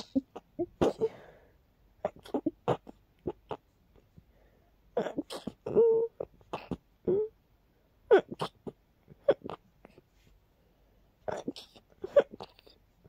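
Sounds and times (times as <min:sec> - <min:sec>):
person sneezing: 0:00.0 - 0:01.3
breathy gasps: 0:01.0 - 0:01.6.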